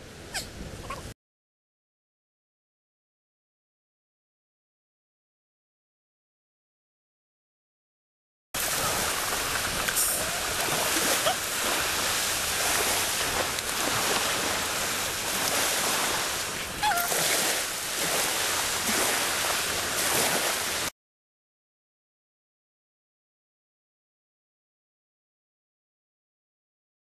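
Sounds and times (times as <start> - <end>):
waves washing onto shore: 8.6 - 20.9
faint short cry: 16.8 - 17.2.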